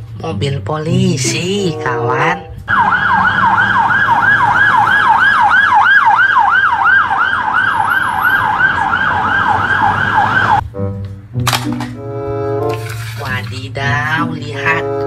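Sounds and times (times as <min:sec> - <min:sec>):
police siren yelping: 0:02.2 - 0:10.6.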